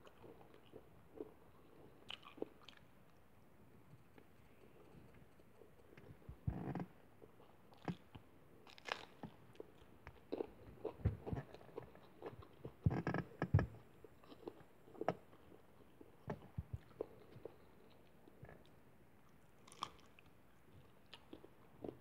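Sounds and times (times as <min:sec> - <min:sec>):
chewing: 0:00.0 - 0:03.2, 0:07.2 - 0:13.4, 0:14.0 - 0:22.0
crunching raw chili: 0:07.7 - 0:12.8.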